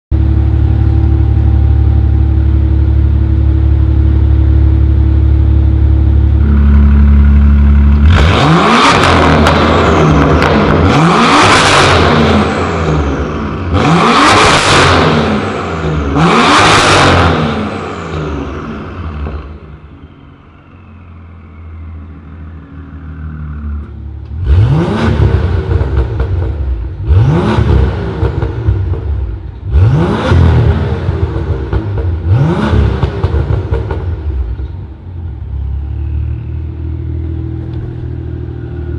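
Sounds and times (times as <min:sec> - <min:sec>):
car engine idling: 0:00.1 - 0:11.1, 0:33.3 - 0:38.9
car engine revving: 0:00.2 - 0:34.6.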